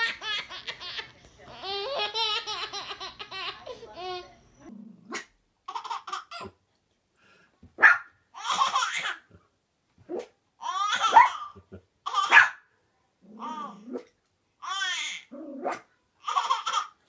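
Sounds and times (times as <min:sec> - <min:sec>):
baby laughing: 0:00.0 - 0:04.3, 0:05.7 - 0:06.6, 0:08.4 - 0:09.3, 0:10.6 - 0:12.4, 0:16.2 - 0:17.0
small dog yapping: 0:11.0 - 0:11.4.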